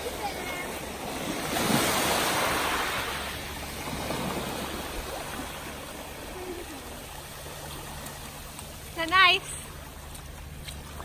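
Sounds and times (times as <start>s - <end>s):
waves breaking on pebble beach: 0.0s - 8.3s.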